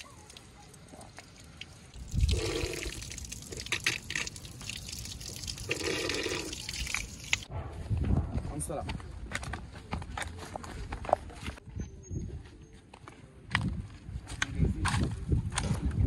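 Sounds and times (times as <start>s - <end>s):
water trickling into stone basin: 0.0s - 7.5s.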